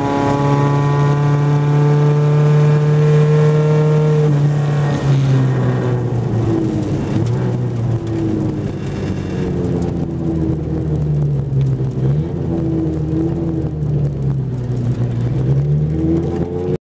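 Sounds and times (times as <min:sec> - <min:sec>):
car engine revving: 0:00.0 - 0:16.8.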